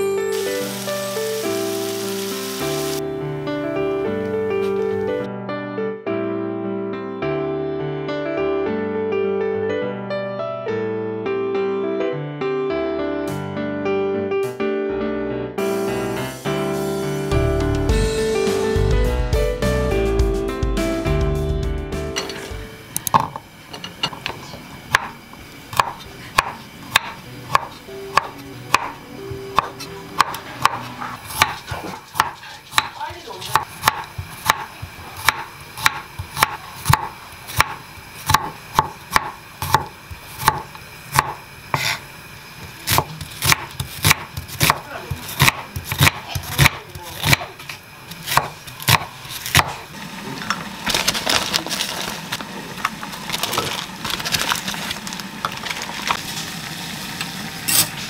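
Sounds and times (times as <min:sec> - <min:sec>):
plastic bag rustling: 0:50.8 - 0:56.5.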